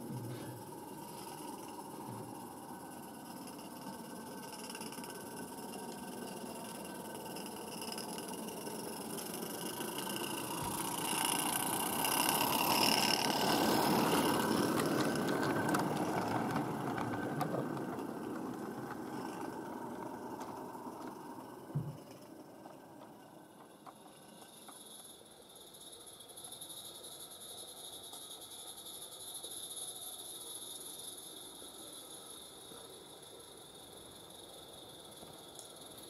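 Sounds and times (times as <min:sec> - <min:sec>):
steam locomotive running past: 0:00.0 - 0:25.5.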